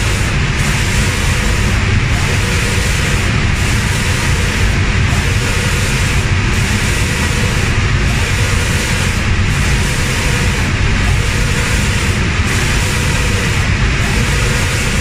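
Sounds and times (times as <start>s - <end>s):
low mechanical rumble: 0.0s - 15.0s
spray guns hissing: 0.0s - 15.0s.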